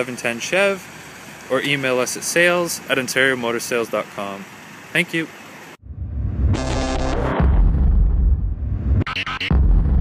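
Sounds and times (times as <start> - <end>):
deep low rumble: 5.8 - 10.0
bright electronic tone: 6.4 - 7.4.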